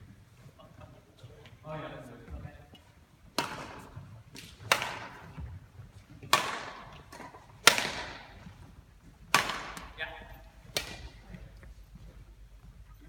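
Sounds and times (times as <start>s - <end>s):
rackets hitting shuttlecock: 3.3s - 5.5s, 6.2s - 11.4s.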